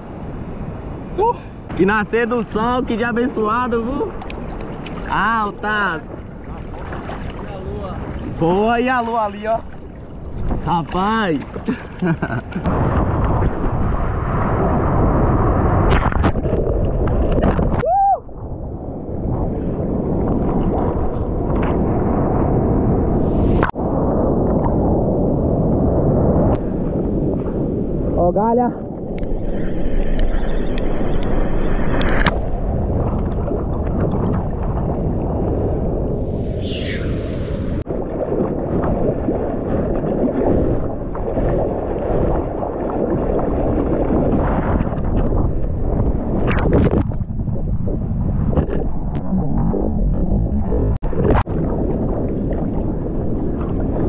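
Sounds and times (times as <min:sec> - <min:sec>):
wind: 0:00.0 - 0:54.0
water rushing around surfboard: 0:03.2 - 0:17.8, 0:19.3 - 0:25.1, 0:29.2 - 0:54.0
surf rushing over microphone: 0:23.0 - 0:28.4, 0:36.0 - 0:54.0.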